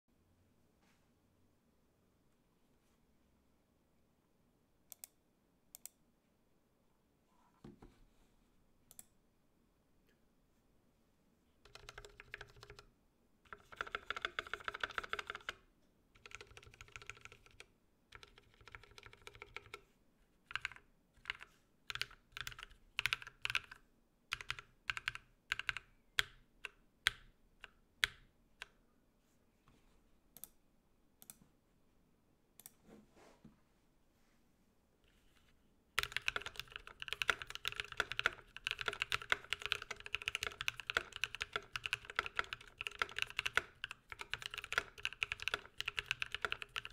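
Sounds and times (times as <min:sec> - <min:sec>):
mechanical keyboard typing: 0:11.7 - 0:12.9, 0:13.5 - 0:15.6, 0:16.2 - 0:19.8, 0:20.5 - 0:28.2, 0:36.0 - 0:46.9.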